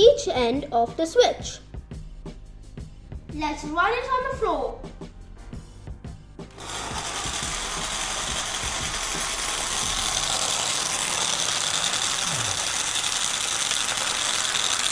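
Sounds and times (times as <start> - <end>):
small motor buzzing rattle: 6.5 - 14.9.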